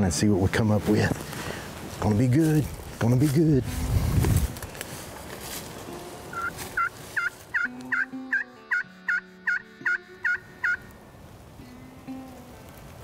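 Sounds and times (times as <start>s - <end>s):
turkey yelps on a friction call: 6.3s - 10.8s.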